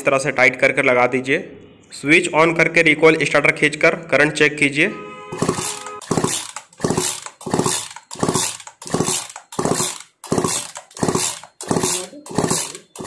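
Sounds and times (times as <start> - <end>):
chainsaw recoil starter pulls: 5.4 - 13.0.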